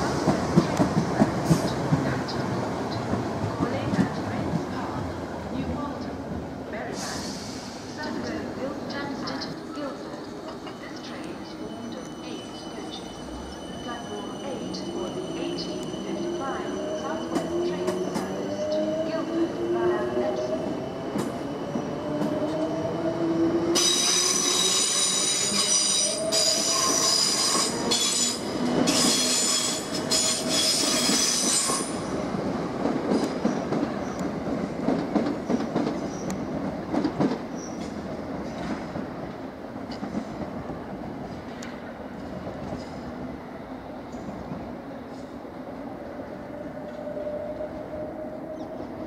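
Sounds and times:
train rumbling over track: 0.0s - 49.0s
train wheels squealing: 11.4s - 19.0s, 23.8s - 32.1s.

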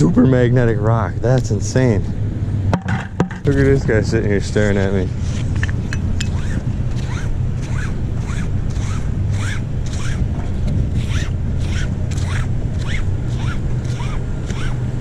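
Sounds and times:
steady low rumble: 0.0s - 15.0s
rope rasping through gloves: 6.3s - 14.8s.

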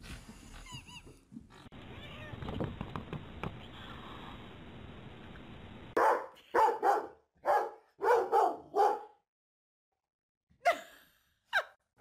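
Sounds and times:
dog barking: 6.0s - 9.2s.

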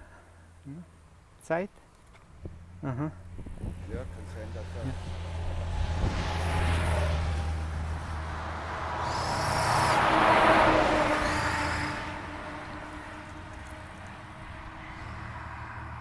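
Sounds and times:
motorcycle passing: 2.4s - 16.0s
refuse truck driving by: 4.6s - 16.0s.

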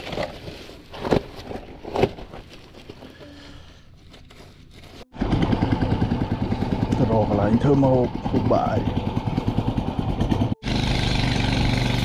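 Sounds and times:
loud motor running: 5.1s - 12.0s.

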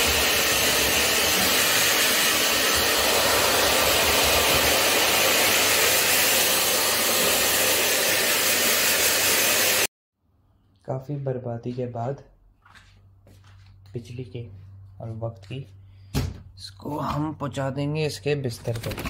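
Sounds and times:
hair dryer blowing: 0.0s - 9.9s.

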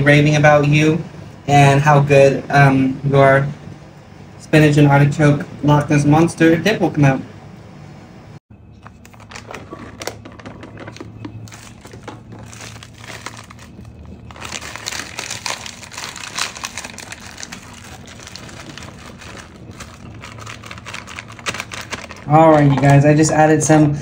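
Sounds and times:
plastic pouch crinkling: 8.8s - 23.0s.

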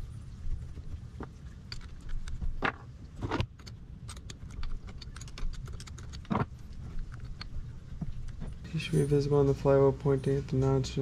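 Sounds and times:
metal parts and tools clinking: 1.6s - 9.4s.

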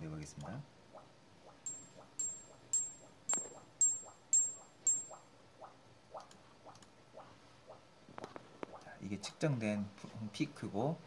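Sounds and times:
metal bar tapped with rod: 1.7s - 5.2s.

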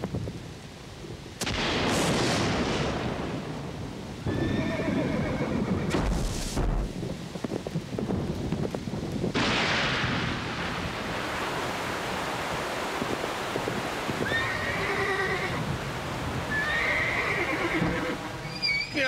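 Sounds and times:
heavy rain pouring: 2.1s - 19.0s
horse whinnying: 4.3s - 6.0s, 14.2s - 15.6s, 16.5s - 19.0s.

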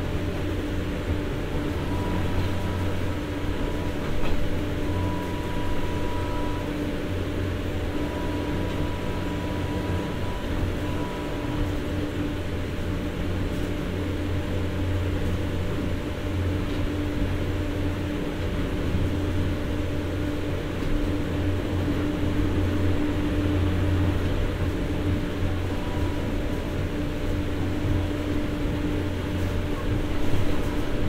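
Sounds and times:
diesel generator droning: 0.0s - 31.0s.

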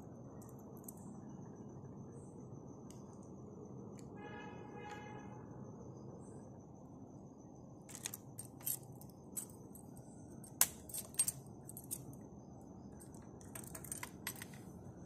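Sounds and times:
keys clinking on a ring: 7.9s - 12.3s, 12.9s - 14.7s.

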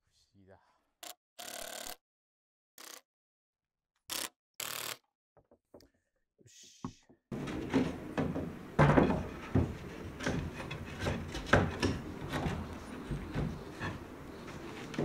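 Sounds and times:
wooden knocks and scrapes: 6.9s - 15.0s.

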